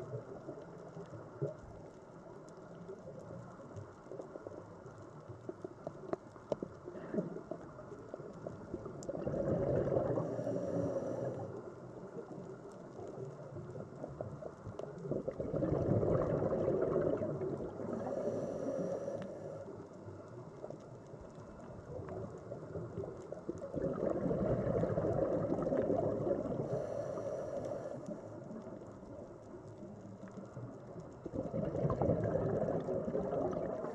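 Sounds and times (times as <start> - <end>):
diver exhaling gurgling bubbles: 8.6 - 11.6, 15.0 - 19.3, 23.6 - 27.9, 31.2 - 33.9.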